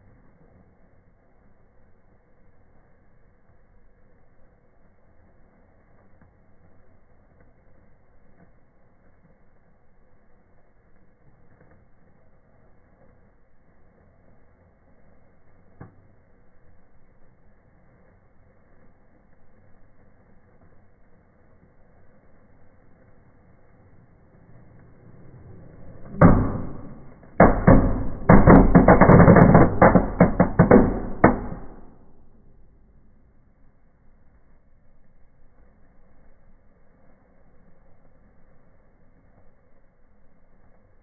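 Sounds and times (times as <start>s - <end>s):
firework fizzing and crackling: 0.0s - 41.0s
firework bang: 24.3s - 33.1s.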